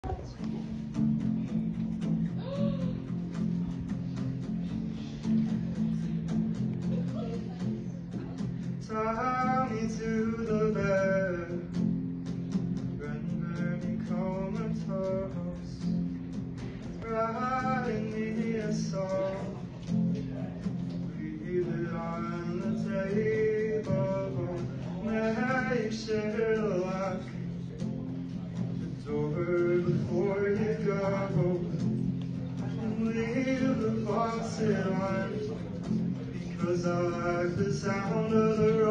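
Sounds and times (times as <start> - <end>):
guitar strumming: 0.0 - 38.9
person singing: 2.2 - 3.2, 16.6 - 20.5, 28.9 - 38.9.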